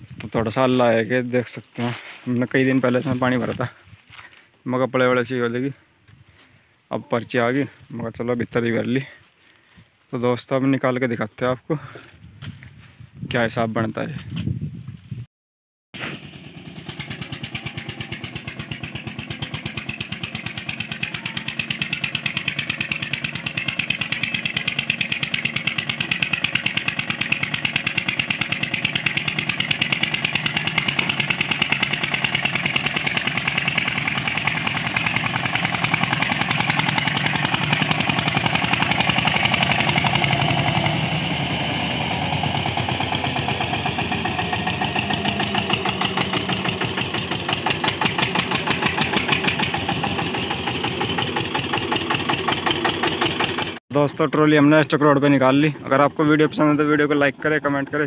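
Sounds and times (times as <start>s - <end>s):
tractor diesel engine chugging: 0.0s - 5.8s, 16.1s - 53.8s.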